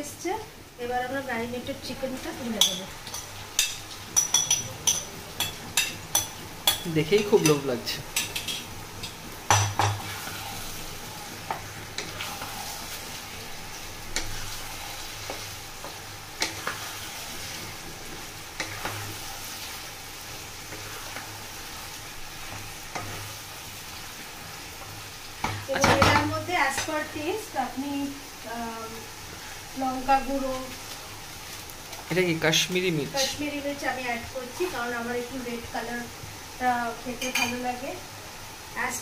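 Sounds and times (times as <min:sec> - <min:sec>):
chicken sizzling in oil: 0:00.0 - 0:39.0
spatula knocking on pan: 0:09.5 - 0:10.0, 0:25.4 - 0:26.9.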